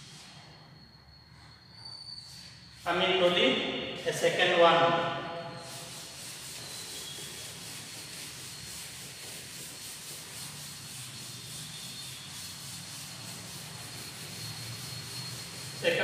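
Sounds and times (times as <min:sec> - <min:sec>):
duster rubbing on chalkboard: 0:05.4 - 0:16.0.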